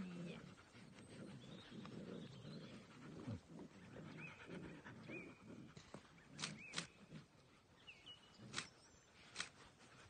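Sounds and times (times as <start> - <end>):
puppy grunting and snuffling: 0.0 - 7.3
sharp clicks: 6.4 - 7.0, 8.5 - 8.7, 9.3 - 9.6.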